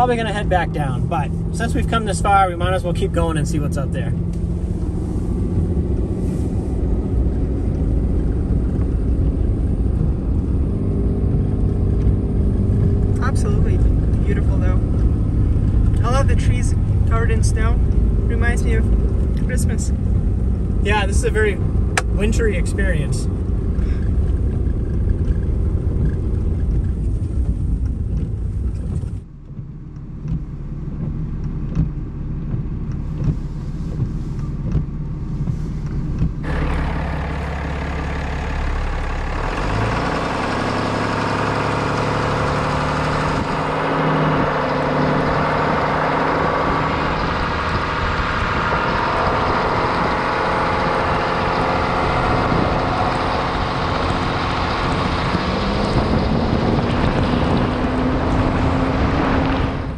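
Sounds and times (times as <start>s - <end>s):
truck engine drone: 0.0s - 59.9s
wind noise: 43.0s - 59.9s.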